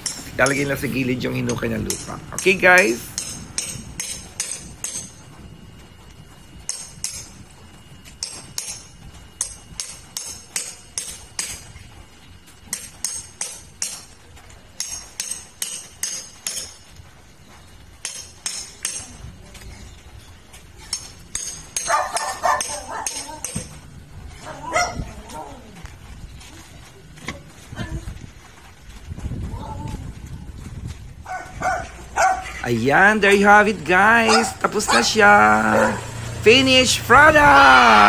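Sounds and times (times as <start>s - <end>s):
hand tool striking metal: 0.0s - 0.8s, 1.4s - 5.2s, 6.7s - 7.3s, 8.2s - 11.6s, 12.7s - 14.1s, 14.8s - 16.8s, 18.0s - 19.2s, 20.9s - 23.8s.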